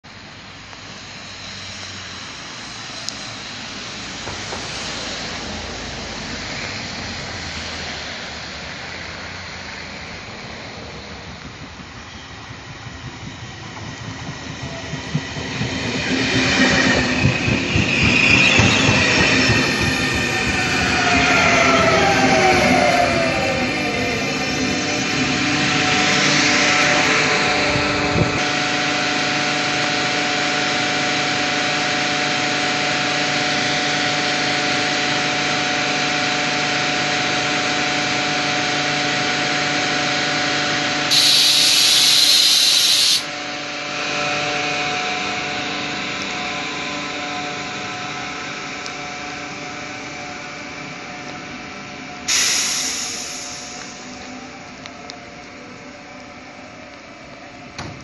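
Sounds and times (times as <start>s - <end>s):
train equipment humming: 0.1s - 58.0s
compressed air hiss: 41.1s - 43.3s, 52.3s - 54.2s.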